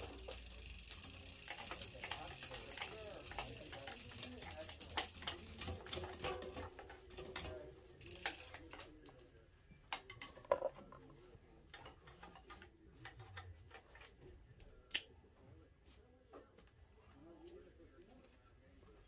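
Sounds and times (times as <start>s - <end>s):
bicycle drivetrain clicks: 0.0s - 9.0s.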